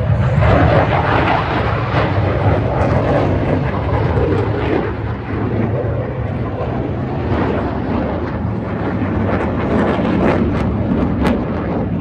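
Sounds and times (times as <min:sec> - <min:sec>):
fighter jets flying overhead: 0:00.0 - 0:12.0.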